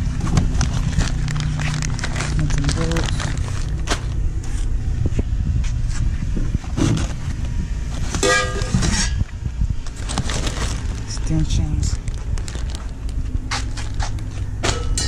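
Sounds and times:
paper and plastic crinkling: 0.0 - 4.7, 9.8 - 14.5
steady low rumble: 0.0 - 15.0.

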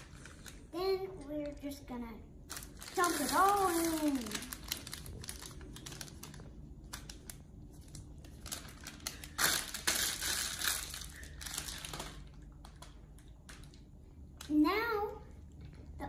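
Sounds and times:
plastic bag crinkling: 0.0 - 0.8, 2.5 - 14.6.

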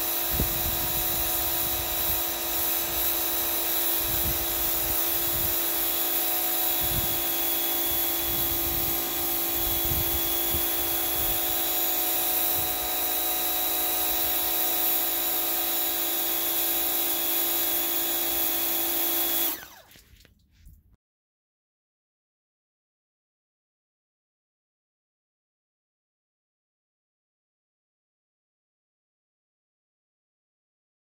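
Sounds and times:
pressure washer jet hissing: 0.0 - 19.9
pump motor whine: 0.0 - 20.0.

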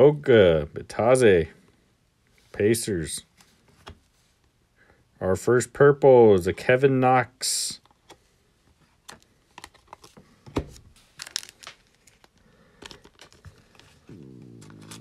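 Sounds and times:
plastic wrapper crinkling and tearing: 11.0 - 14.0
stomach growl: 14.0 - 15.0.

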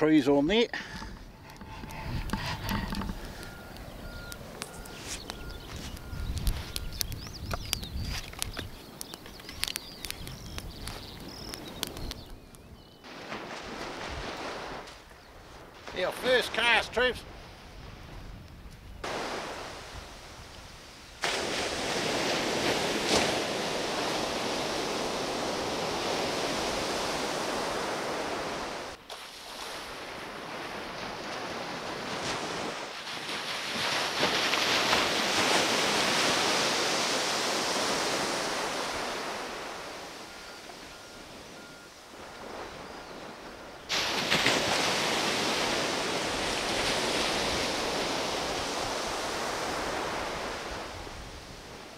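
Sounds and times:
surf washing onto beach: 13.0 - 18.2, 19.0 - 51.9.

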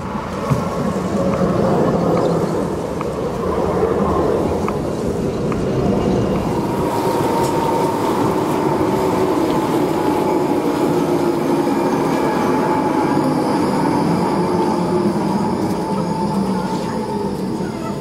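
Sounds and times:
tram wheels on rails: 0.0 - 18.0
tram motor whine: 4.7 - 18.0.

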